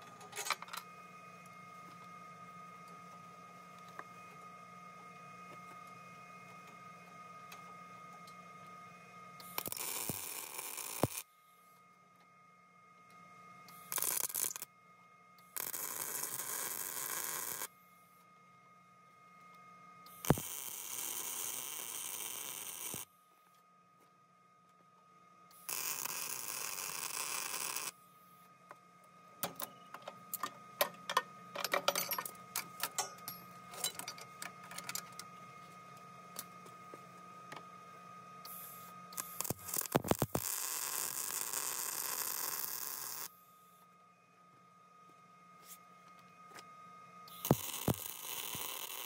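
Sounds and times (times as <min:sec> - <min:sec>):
welder arc hissing: 0:09.4 - 0:11.2, 0:13.7 - 0:14.6, 0:15.5 - 0:17.7, 0:20.1 - 0:23.1, 0:25.5 - 0:28.0, 0:38.5 - 0:43.3, 0:47.3 - 0:49.0.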